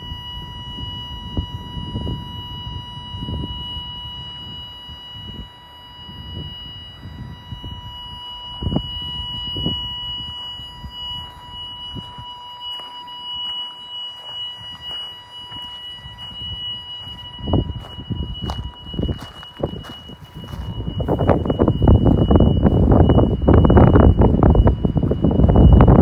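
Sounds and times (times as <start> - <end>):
wind on microphone: 0.0 - 13.6, 14.2 - 26.0
high electronic buzzing tone: 0.0 - 26.0
footsteps on gravel: 12.0 - 21.5.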